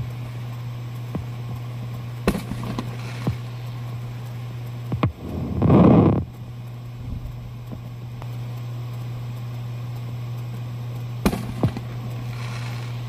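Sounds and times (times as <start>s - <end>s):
steady low hum: 0.0s - 13.0s
distant fireworks bangs: 2.3s - 3.4s, 11.2s - 12.0s.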